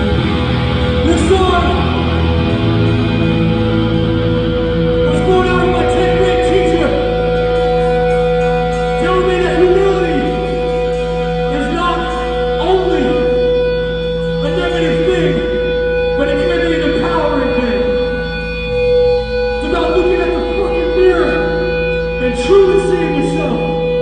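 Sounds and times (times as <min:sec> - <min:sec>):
punk band playing live: 0:00.0 - 0:09.0.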